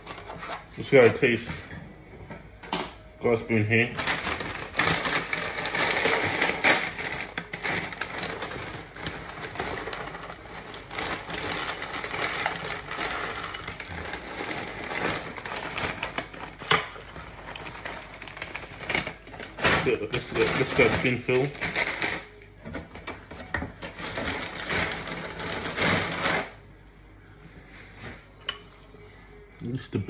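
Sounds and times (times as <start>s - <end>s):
plastic bag crackling: 3.7s - 22.4s, 23.7s - 26.6s.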